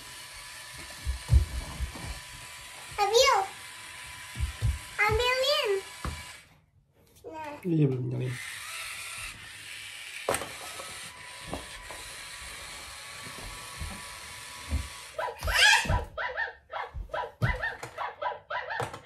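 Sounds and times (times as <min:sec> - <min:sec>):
toy robot electronic sounds: 0:08.3 - 0:13.2.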